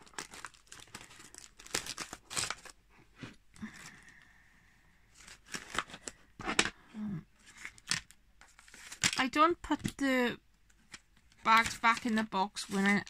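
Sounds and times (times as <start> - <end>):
plastic bags crinkling: 0.0 - 2.8, 11.3 - 13.0.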